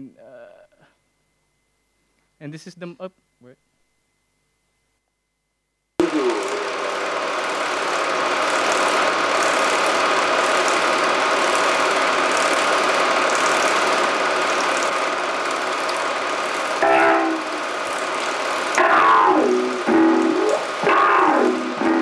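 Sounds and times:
cluster of pitched tones: 6.0 - 7.0, 16.8 - 17.7, 18.8 - 22.0
loud drone of dense noise: 6.0 - 22.0.

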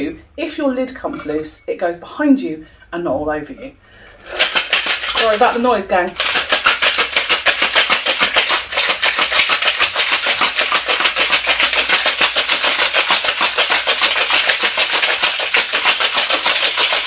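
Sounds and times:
ice rattling in cocktail shaker: 4.2 - 17.0.

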